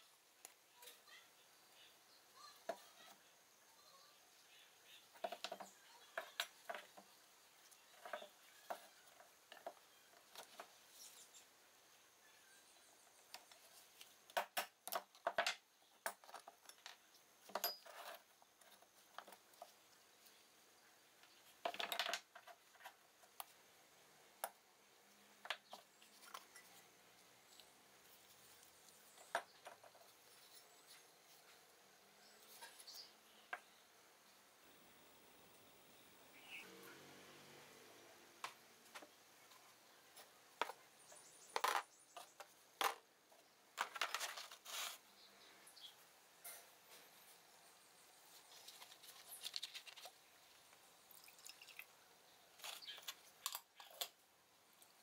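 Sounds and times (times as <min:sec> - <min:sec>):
metal parts clanking on wooden table: 0:17.5 - 0:18.2.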